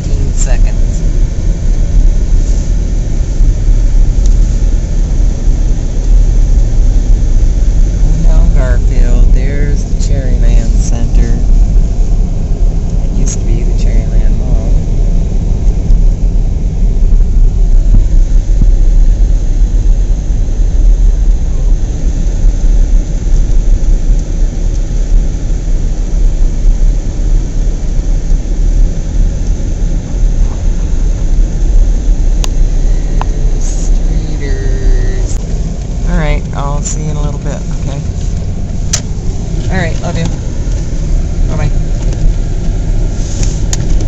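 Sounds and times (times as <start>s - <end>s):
engine and tyre rumble: 0.0s - 44.0s.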